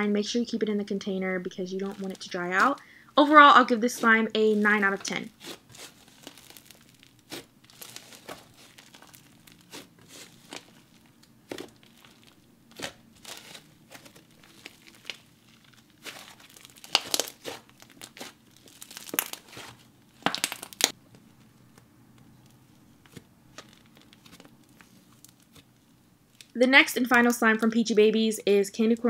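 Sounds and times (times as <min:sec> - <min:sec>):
slime crackling and crinkling: 0:00.4 - 0:27.9.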